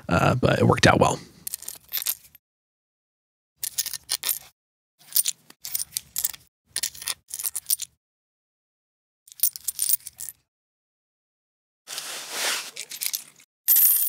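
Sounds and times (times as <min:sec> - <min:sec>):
coins clinking in a hand: 0:03.6 - 0:07.9, 0:09.3 - 0:10.3, 0:12.8 - 0:14.0
coins clinking on stone: 0:05.0 - 0:07.9, 0:09.3 - 0:10.3, 0:12.8 - 0:14.0.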